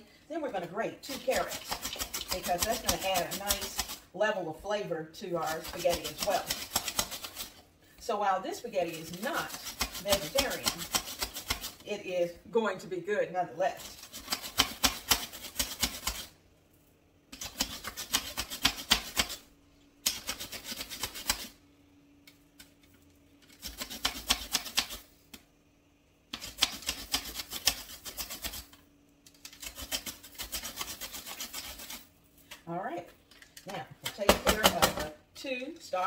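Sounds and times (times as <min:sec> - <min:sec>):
celery grated on hand grater: 0:01.0 - 0:04.0, 0:05.4 - 0:07.6, 0:08.8 - 0:11.8, 0:13.8 - 0:16.3, 0:17.4 - 0:19.4, 0:20.1 - 0:21.5, 0:23.6 - 0:25.0, 0:26.4 - 0:28.8, 0:29.5 - 0:32.0.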